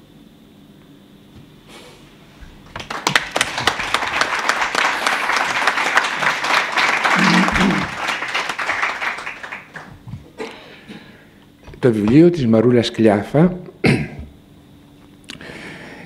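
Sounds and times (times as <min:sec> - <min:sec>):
audience applauding: 0:02.6 - 0:10.1.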